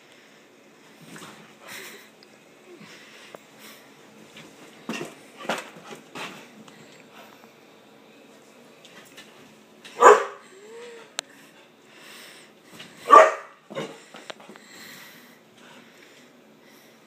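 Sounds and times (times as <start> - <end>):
dog barking: 10.0 - 10.4, 13.0 - 13.6.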